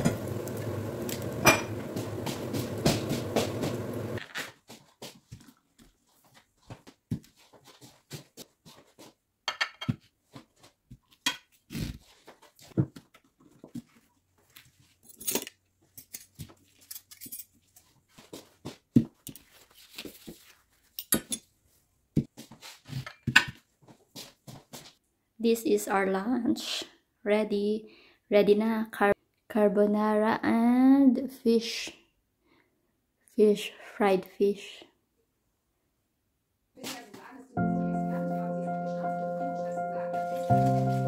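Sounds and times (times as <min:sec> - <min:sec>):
dishes clinking on table: 0:01.4 - 0:01.8, 0:09.5 - 0:10.0.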